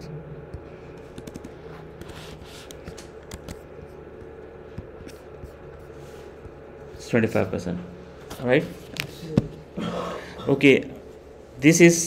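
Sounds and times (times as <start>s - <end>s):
faint steady hum: 0.0s - 12.0s
computer keyboard typing: 1.0s - 2.1s.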